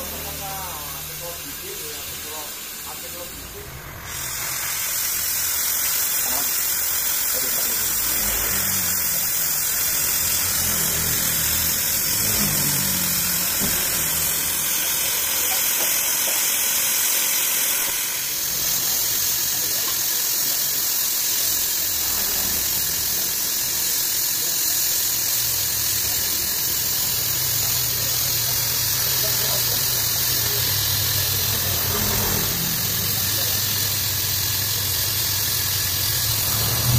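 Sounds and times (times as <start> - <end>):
cutting torch hissing: 0.0 - 36.9
low machine hum: 6.5 - 15.7, 21.4 - 36.9.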